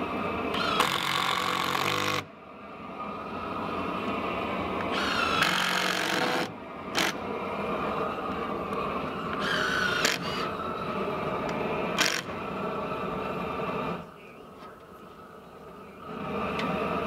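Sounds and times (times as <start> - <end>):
steady hum: 0.0 - 17.0
cordless drill motor spinning: 0.5 - 2.2, 4.9 - 7.2, 9.3 - 10.5, 12.0 - 12.3.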